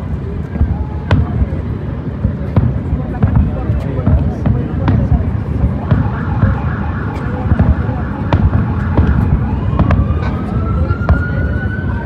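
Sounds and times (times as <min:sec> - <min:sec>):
fireworks booming: 0:00.3 - 0:11.5.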